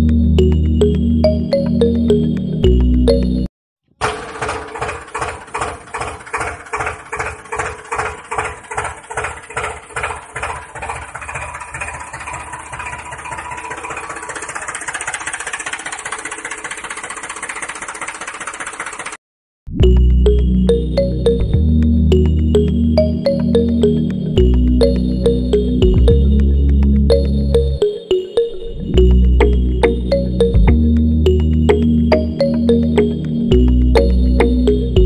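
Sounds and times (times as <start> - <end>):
tractor engine chugging: 4.0 - 19.2.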